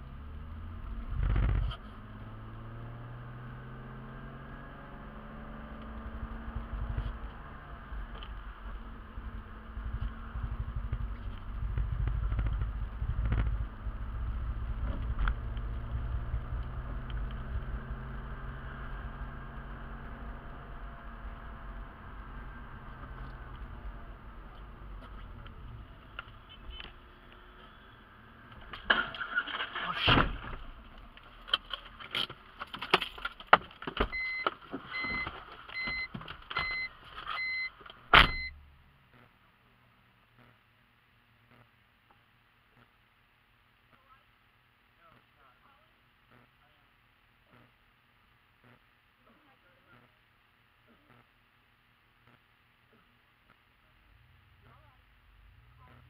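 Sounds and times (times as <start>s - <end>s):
car engine and tyre rumble: 0.0s - 40.3s, 53.8s - 56.0s
loud thump: 30.0s - 30.7s
car warning chime beeping: 34.1s - 38.6s.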